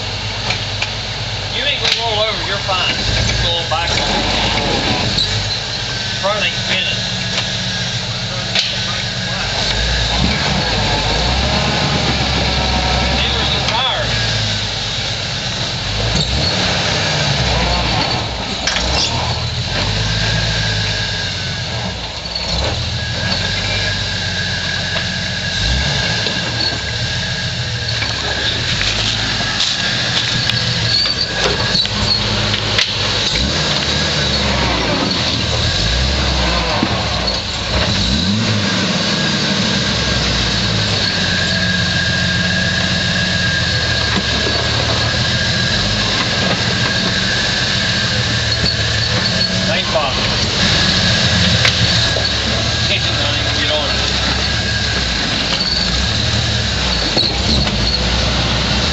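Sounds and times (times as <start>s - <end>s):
engine running and revving: 0.0s - 58.9s.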